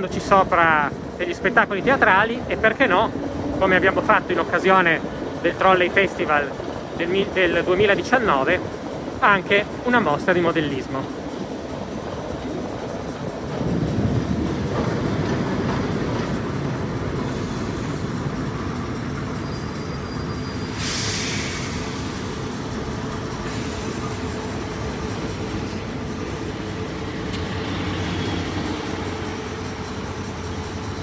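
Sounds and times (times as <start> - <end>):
tram wheels rumbling on rails: 0.0 - 31.0
brief hiss: 20.7 - 22.2.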